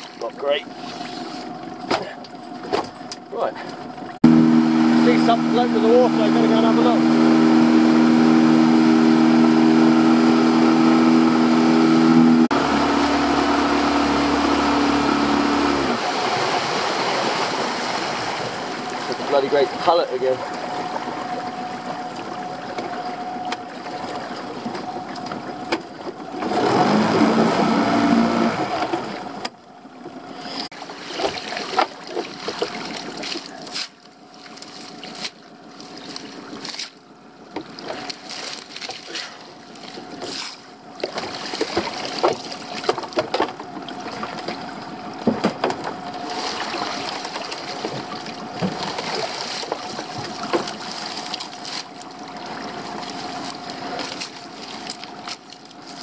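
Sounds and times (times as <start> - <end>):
water splashing and dripping: 0.0 - 4.2, 15.9 - 26.6, 30.7 - 56.0
outboard motor running: 0.0 - 56.0.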